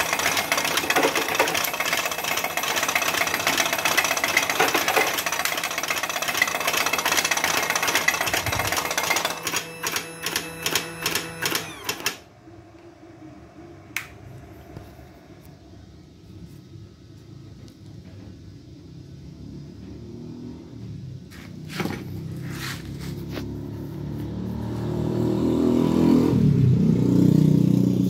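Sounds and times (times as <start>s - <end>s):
machine mechanical clatter: 0.0s - 12.3s.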